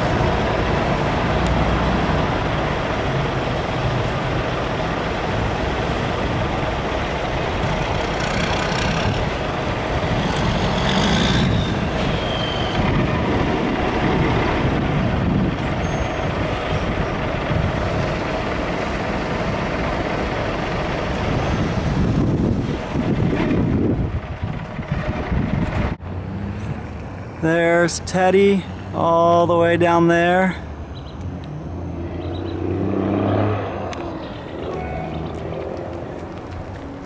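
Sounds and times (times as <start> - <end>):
truck driving past: 0.0 - 27.5, 30.6 - 37.0
road traffic: 0.0 - 37.0
short high squeal: 10.5 - 12.8, 15.8 - 16.4, 34.2 - 35.3.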